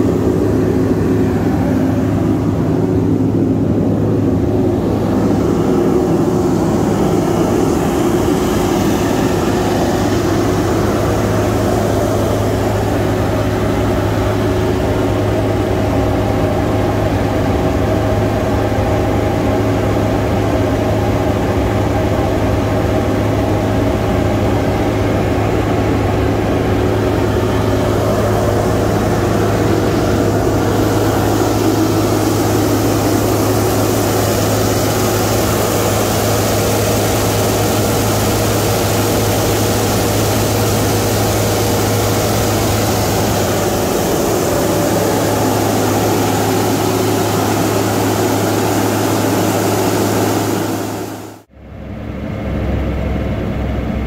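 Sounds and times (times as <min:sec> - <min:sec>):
diesel engine running at raised revs: 0:00.0 - 0:54.0.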